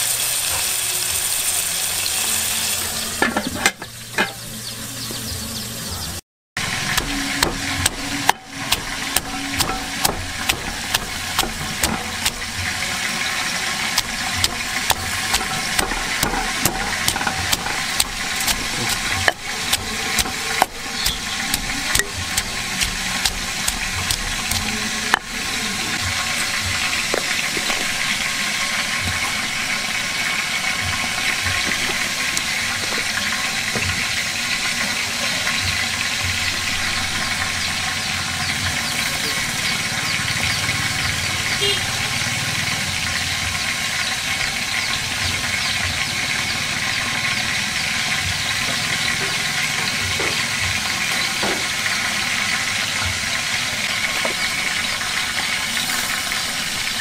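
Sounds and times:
pestle pounding in stone mortar: 6.7 - 12.8, 13.9 - 25.4.

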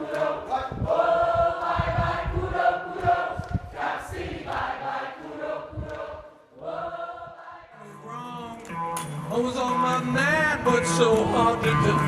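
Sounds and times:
choir singing held chords: 0.0 - 8.0.

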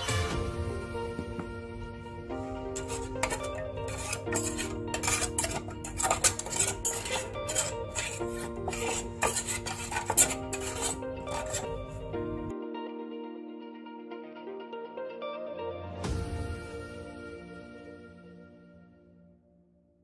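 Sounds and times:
plucked-string background music: 0.0 - 18.8
spatula scraping metal pot: 2.5 - 12.5.

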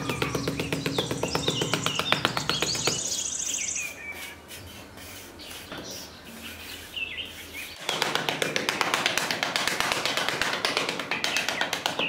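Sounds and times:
birds chirping faintly: 0.0 - 8.3
trowel scraping in sand: 3.4 - 7.8.

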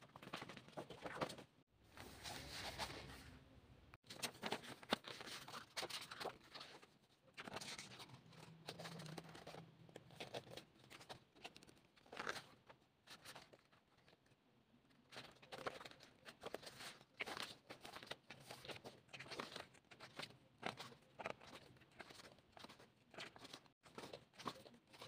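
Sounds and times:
paper rustling: 0.0 - 3.3, 4.1 - 12.5
photobook pages turning: 0.1 - 3.3, 4.1 - 13.5, 15.1 - 25.0.

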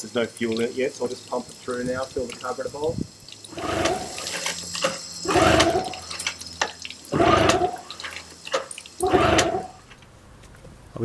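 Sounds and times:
outboard motor cranking: 3.5 - 6.5, 7.1 - 10.0
recoil starter yanks: 3.5 - 10.0.

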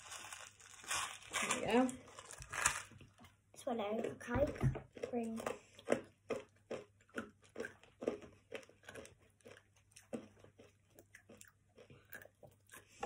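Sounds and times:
crunching candies: 0.0 - 3.2.

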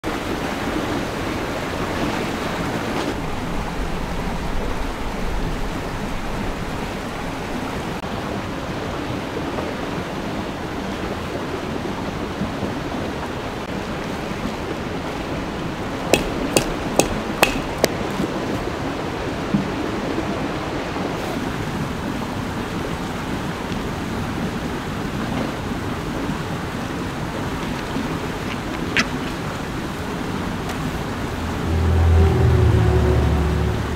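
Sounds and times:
stake hammered into ground: 16.2 - 18.0.

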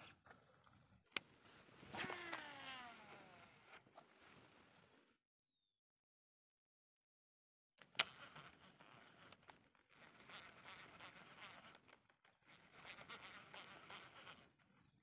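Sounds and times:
fishing reel whirring: 1.9 - 3.8, 8.0 - 14.6.

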